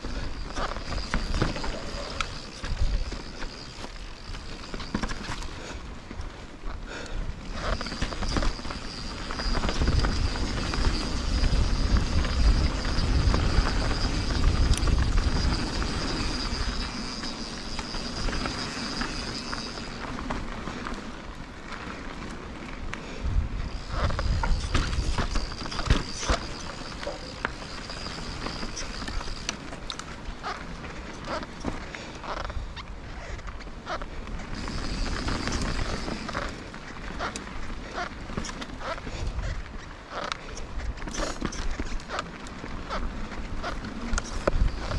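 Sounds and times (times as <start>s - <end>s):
bike clicks and knocks: 0.1s - 32.7s, 33.3s - 44.9s
wind rumbling on microphone: 6.2s - 44.9s
high-pitched whine: 7.6s - 20.3s
tyres crunching over dirt: 23.6s - 32.6s.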